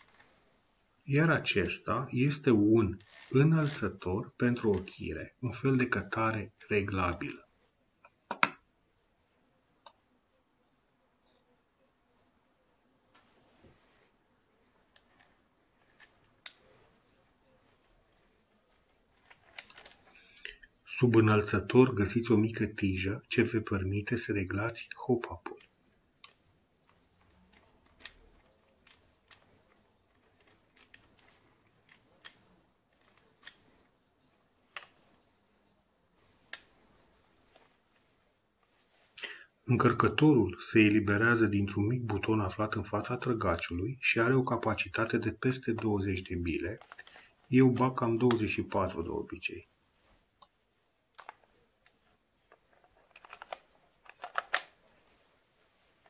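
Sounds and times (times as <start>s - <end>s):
clicks and knocks handling rifle: 46.8s - 48.4s, 51.2s - 55.1s.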